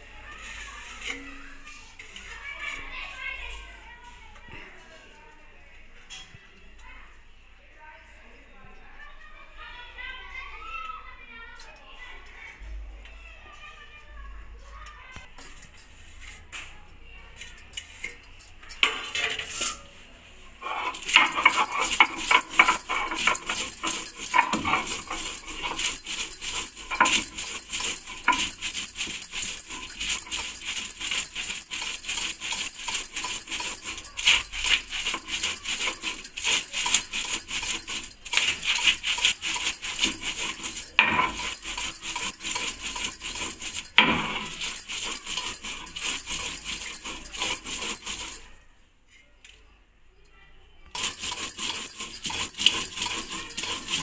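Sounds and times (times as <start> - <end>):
stone grinding on stone: 20.6 - 48.4, 51.0 - 54.0.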